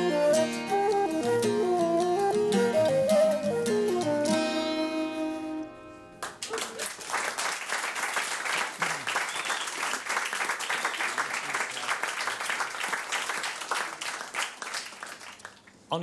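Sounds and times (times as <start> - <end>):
audience applauding: 6.2 - 15.8.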